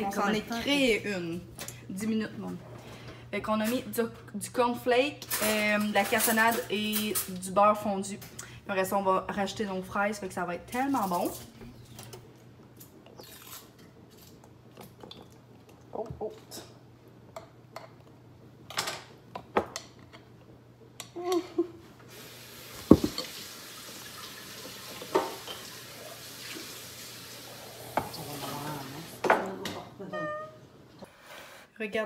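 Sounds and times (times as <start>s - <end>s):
glass and plastic clinking: 22.9s - 23.3s.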